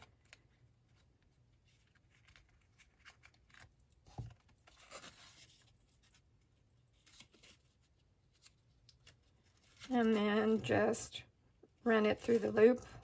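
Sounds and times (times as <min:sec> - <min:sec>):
paper and ribbon rustling: 0:00.0 - 0:11.1, 0:12.1 - 0:13.0.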